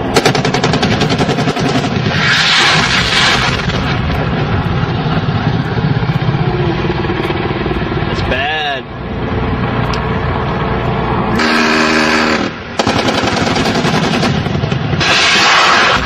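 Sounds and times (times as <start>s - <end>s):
loud rushing burst of noise: 1.8s - 16.0s
helicopter engine and rotor drone: 3.4s - 15.0s.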